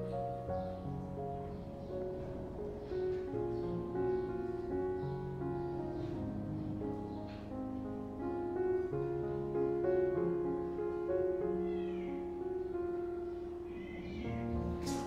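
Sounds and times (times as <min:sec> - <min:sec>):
soft piano music: 0:00.0 - 0:15.0
kitten mewing: 0:11.6 - 0:12.2, 0:13.7 - 0:15.0.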